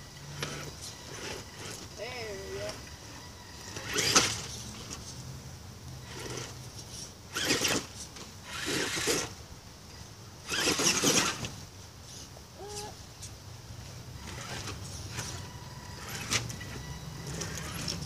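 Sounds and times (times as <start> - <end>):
electric motor whirring: 0.1 - 5.1, 7.3 - 9.4, 14.2 - 18.0.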